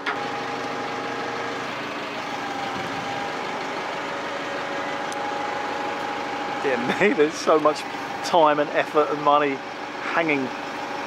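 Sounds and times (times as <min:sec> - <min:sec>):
hydraulic crane whine: 0:00.0 - 0:11.0
truck engine running: 0:00.0 - 0:11.0.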